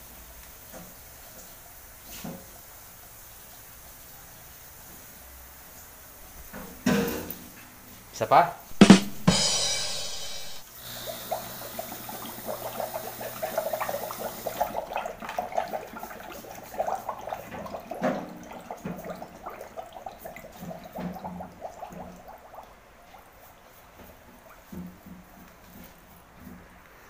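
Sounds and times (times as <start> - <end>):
short gas hiss: 8.7 - 14.6
bubbling and gurgling in water: 10.9 - 23.4.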